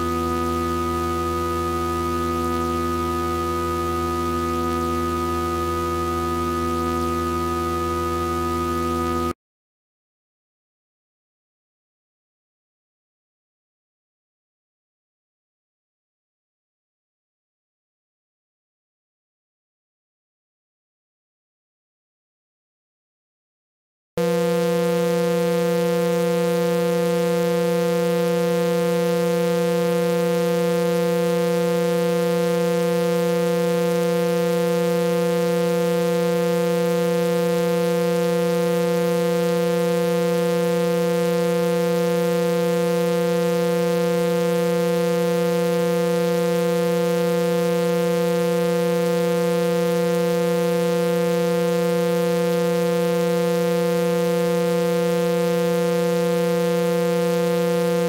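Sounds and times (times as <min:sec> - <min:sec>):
steady buzzy electronic tone: 0:00.0 - 0:09.4, 0:24.2 - 0:58.0.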